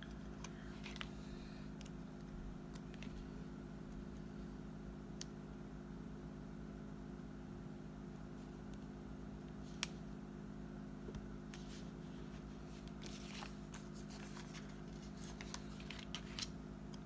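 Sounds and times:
paper stickers rustling: 0.0s - 3.3s, 11.6s - 17.0s
paper crackles and ticks: 12.8s - 17.0s.

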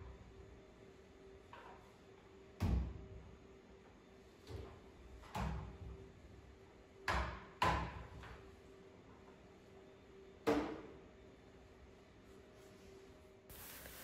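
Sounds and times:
mop swishing on floor: 13.5s - 14.0s.

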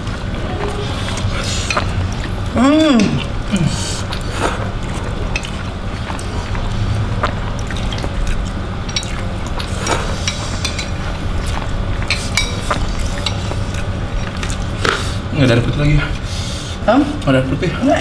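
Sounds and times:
slurping broth: 0.0s - 15.3s
broth bubbling in pot: 0.0s - 16.2s
metal spoons clicking on bowls: 4.9s - 6.3s, 7.6s - 15.5s.

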